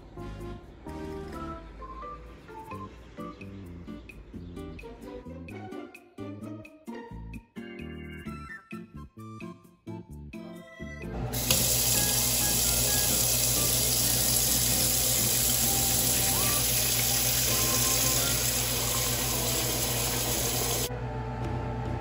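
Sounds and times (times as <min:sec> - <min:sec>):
tap water pouring into metal pot: 0:11.4 - 0:20.9.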